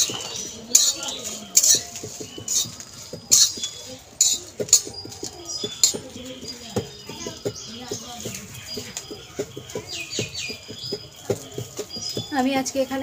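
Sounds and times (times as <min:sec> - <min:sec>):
metal spatula scraping pan: 0:00.7 - 0:04.4.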